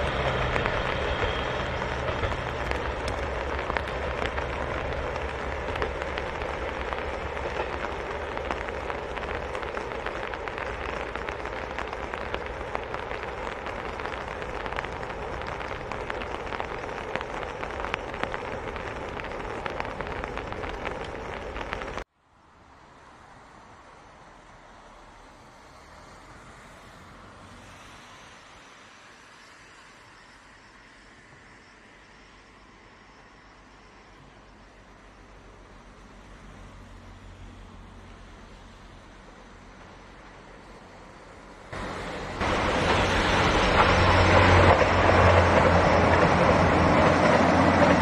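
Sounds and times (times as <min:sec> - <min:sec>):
diesel railcar rumble: 0:00.0 - 0:22.0, 0:33.5 - 0:48.0
steady rain: 0:00.0 - 0:48.0.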